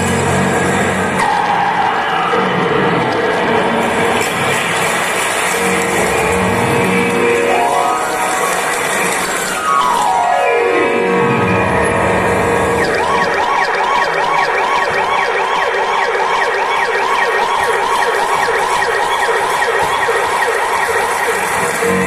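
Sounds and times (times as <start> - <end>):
yelping siren: 12.7 - 22.0.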